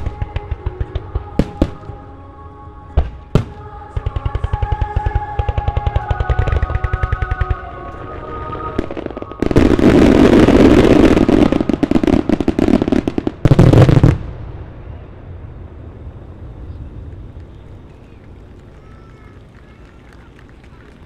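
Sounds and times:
fireworks bangs and crackling: 0.0s - 2.2s, 2.9s - 21.0s.

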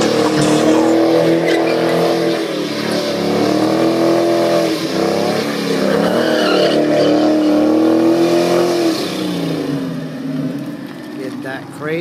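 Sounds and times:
car engine at high revs: 0.0s - 12.0s.

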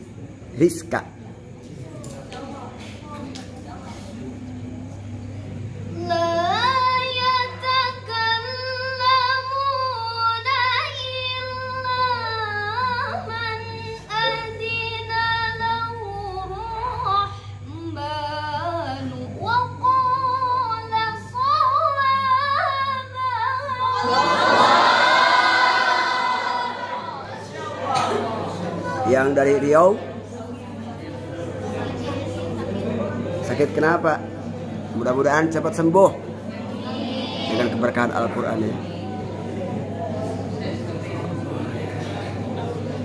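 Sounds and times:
woman reciting melodically: 5.8s - 27.5s.

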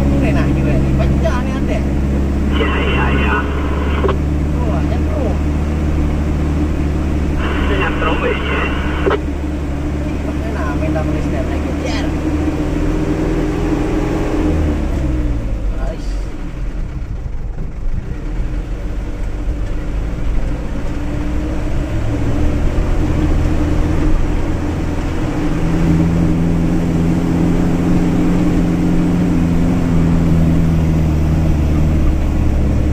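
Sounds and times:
truck engine running: 0.0s - 32.9s.

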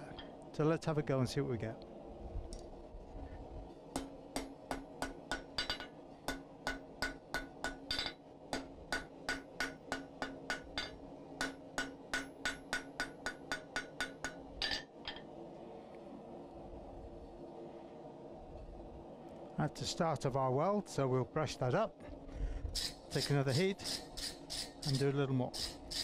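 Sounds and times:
hammer striking steel on anvil: 3.9s - 15.3s.

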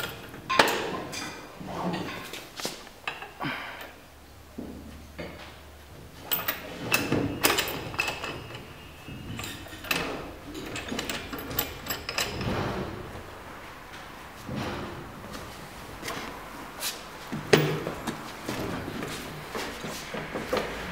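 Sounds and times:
metal clamps clanking and knocking: 0.0s - 2.4s, 4.6s - 13.2s, 13.9s - 15.1s, 17.3s - 20.9s.

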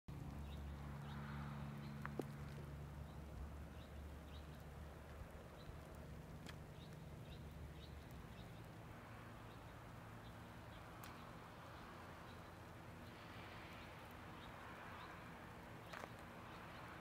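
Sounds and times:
soft high ticks: 11.0s - 11.3s.

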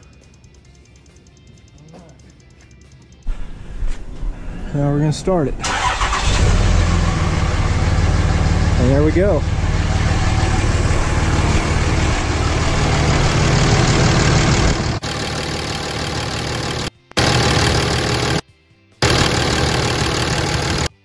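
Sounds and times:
diesel engine idling: 5.7s - 18.4s, 19.0s - 20.9s.

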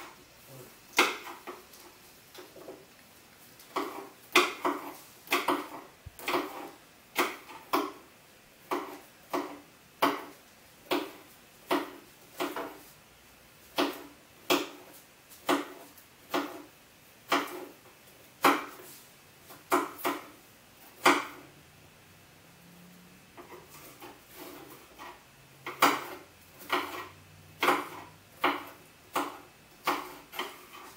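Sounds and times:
knives chopping on cutting board: 0.9s - 1.6s, 3.7s - 12.8s, 13.7s - 17.8s, 18.4s - 21.5s, 23.4s - 30.9s.

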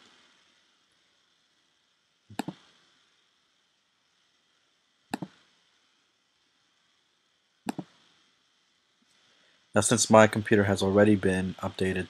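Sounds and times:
faint room hiss: 0.0s - 12.0s
computer mouse clicks: 2.3s - 2.7s, 5.1s - 5.4s, 7.6s - 8.0s.

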